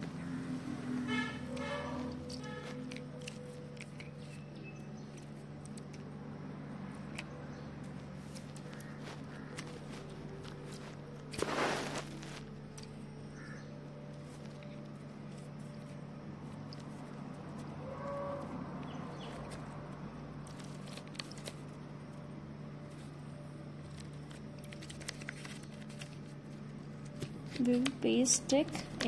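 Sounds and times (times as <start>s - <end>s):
steady low hum: 0.0s - 29.0s
paper and stick handling: 1.1s - 6.1s, 7.0s - 13.0s, 14.1s - 17.8s, 19.1s - 22.2s, 23.8s - 27.9s.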